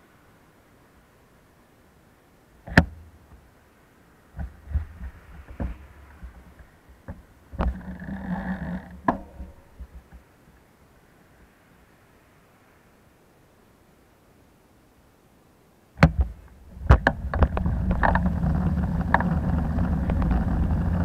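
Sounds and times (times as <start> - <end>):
dull thumps and clicks: 2.6 - 3.4, 4.3 - 10.3, 16.0 - 21.0
short rumbling: 16.3 - 21.0.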